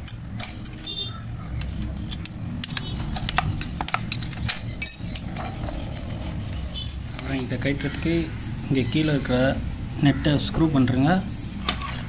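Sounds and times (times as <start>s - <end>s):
spanner and bolts clinking: 1.6s - 6.0s, 11.2s - 12.0s
sharp metallic clink: 4.8s - 5.2s.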